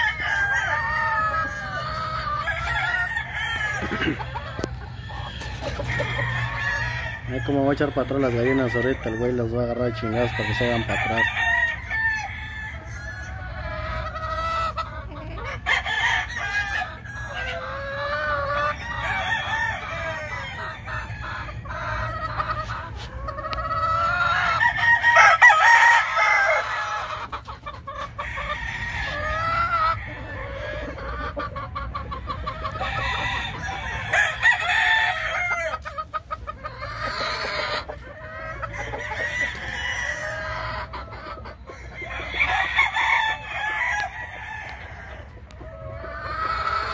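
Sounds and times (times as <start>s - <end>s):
hens clucking: 0.0s - 46.9s
roosters crowing: 0.0s - 46.9s.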